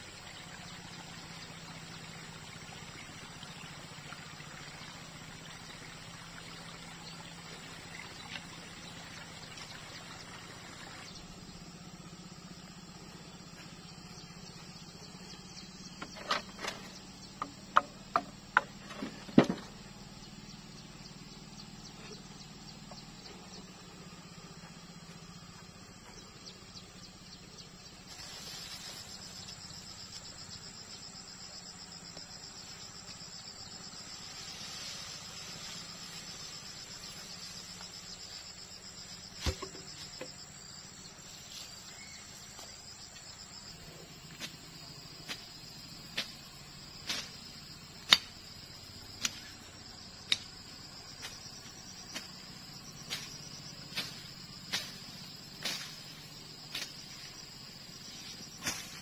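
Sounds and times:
sharp knocks: 16.0 - 19.7.

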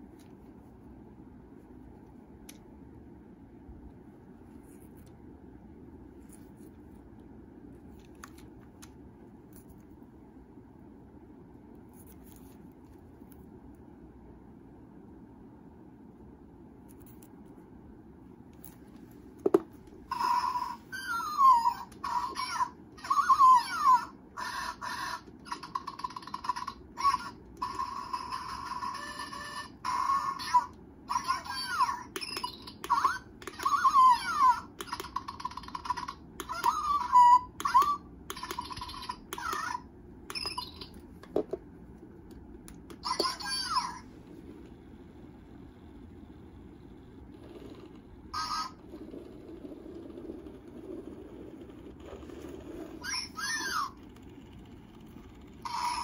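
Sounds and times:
toy hamster electronic squeaks: 20.1 - 41.0, 42.9 - 44.0, 47.4 - 56.0
toy click: 30.4 - 41.3.

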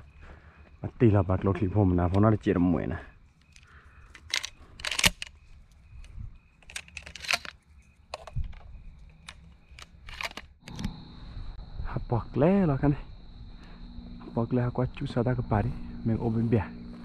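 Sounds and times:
sharp clicks and rustles: 3.3 - 11.0.

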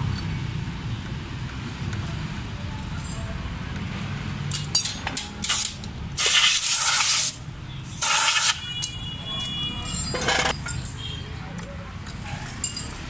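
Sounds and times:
compressed air blow gun hissing: 8.0 - 8.6.

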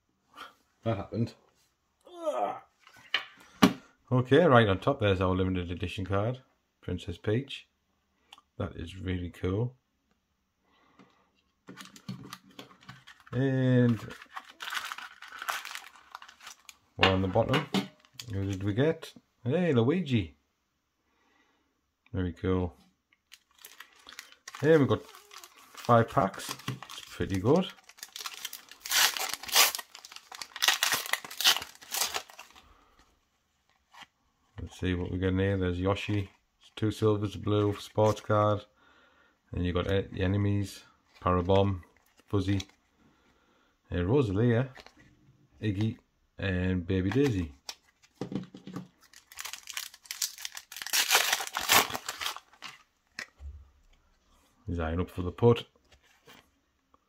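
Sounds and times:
plastic wrapper tearing and crinkling: 11.7 - 16.9, 17.9 - 18.6, 23.3 - 32.7, 47.1 - 53.3.

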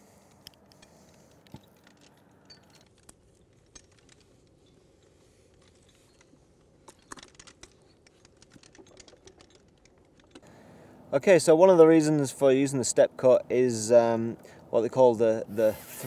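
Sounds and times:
climbing hardware clicking: 0.2 - 10.5.

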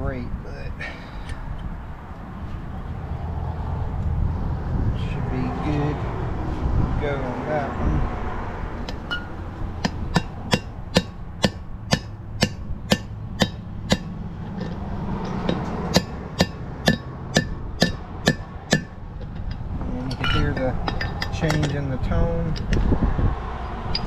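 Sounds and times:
wind rumble on microphone: 0.0 - 24.0
hammer blows ringing on metal: 9.1 - 14.1, 15.4 - 19.0.

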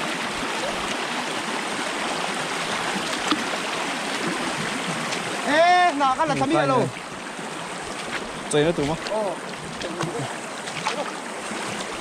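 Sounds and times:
river rushing over rocks: 0.0 - 12.0.

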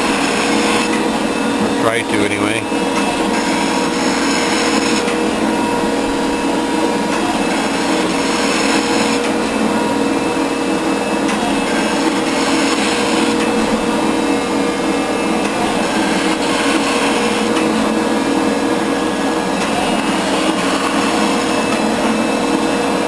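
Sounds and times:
hydraulic drive humming: 0.0 - 23.0
shaper ram stroking: 3.0 - 5.2, 15.4 - 17.7.

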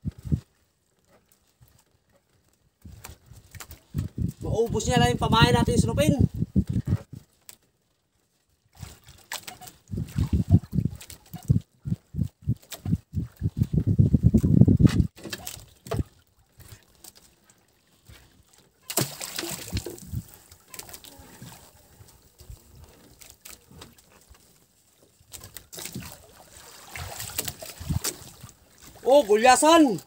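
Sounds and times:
water sloshing against boat: 6.6 - 30.0.

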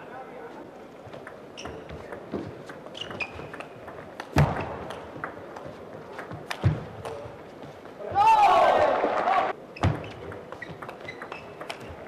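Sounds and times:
table tennis ball clicking: 10.3 - 12.0.

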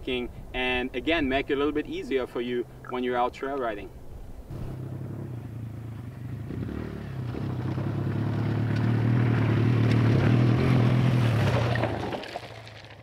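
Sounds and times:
dirt bike engine passing by: 4.5 - 13.0.

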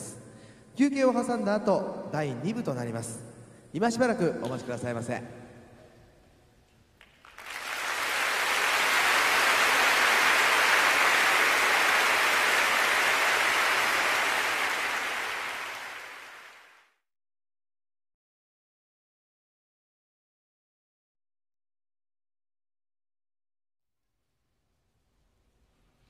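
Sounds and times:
audience applauding: 7.0 - 16.9.

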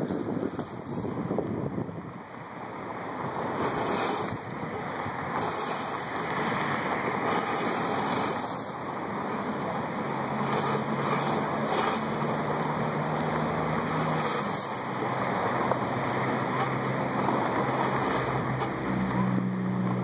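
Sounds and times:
steady rushing noise: 0.0 - 20.0.

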